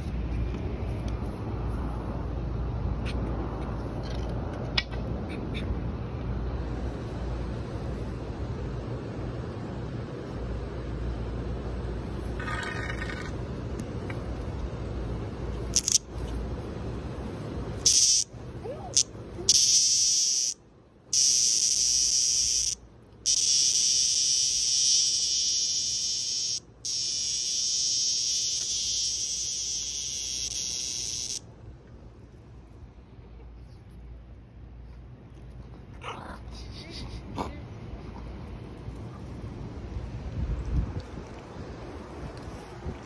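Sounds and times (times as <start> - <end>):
cicada buzzing: 15.7 - 16.1, 17.8 - 18.3, 18.9 - 31.5
wind rumbling on microphone: 38.3 - 43.0.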